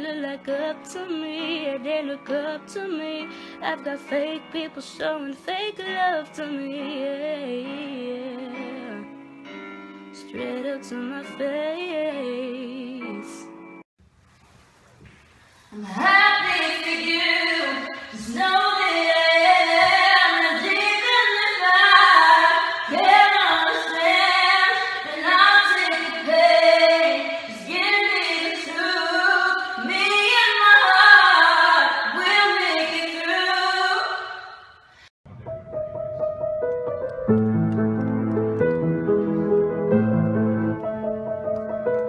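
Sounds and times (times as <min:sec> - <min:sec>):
woman singing unaccompanied: 0:00.0 - 0:09.1, 0:10.2 - 0:13.5, 0:15.7 - 0:34.3.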